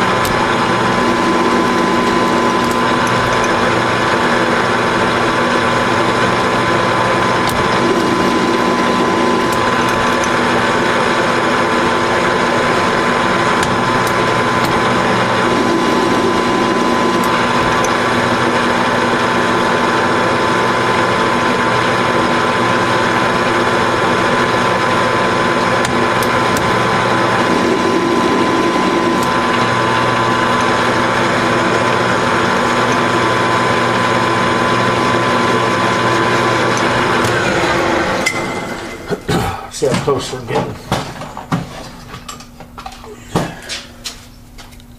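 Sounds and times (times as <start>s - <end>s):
threading tool cutting metal: 0.0s - 19.0s, 25.4s - 38.4s
metal lathe gear whine: 0.0s - 40.9s.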